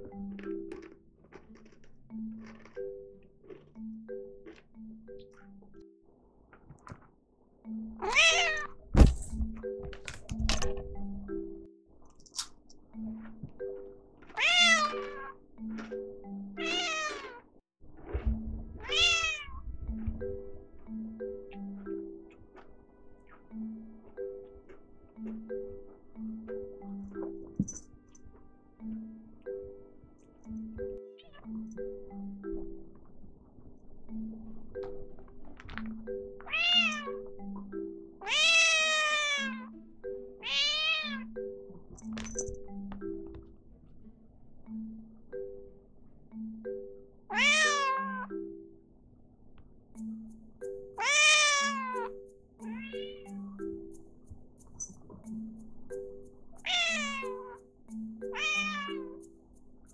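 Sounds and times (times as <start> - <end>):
marimba background music: 0.0 - 6.3, 7.6 - 11.9, 12.7 - 17.1, 18.4 - 59.9
cat meowing: 8.0 - 8.8, 14.3 - 15.4, 16.6 - 17.5, 18.8 - 19.6, 31.1 - 31.6, 36.5 - 37.2, 38.2 - 39.7, 40.4 - 41.3, 47.3 - 48.3, 51.0 - 53.3, 56.7 - 57.6, 58.4 - 59.1.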